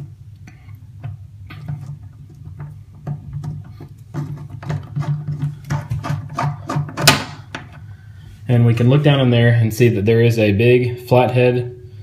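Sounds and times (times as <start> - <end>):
drain stopper clicks and scrapes: 0.0 - 7.8
steady low hum: 0.0 - 12.0.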